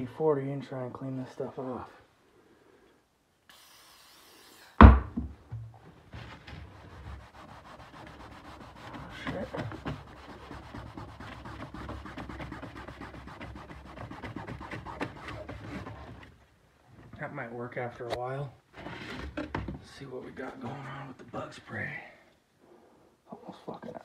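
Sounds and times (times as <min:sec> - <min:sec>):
aerosol spray hiss: 0:03.5 - 0:04.8
loud knock: 0:04.8 - 0:05.4
rag rubbing on plastic lid: 0:06.5 - 0:16.3.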